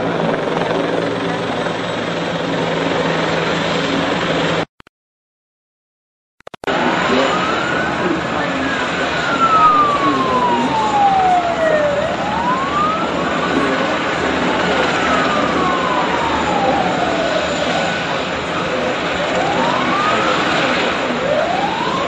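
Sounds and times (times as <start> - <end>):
noisy background: 6.6 - 22.0
emergency siren wailing: 6.7 - 22.0.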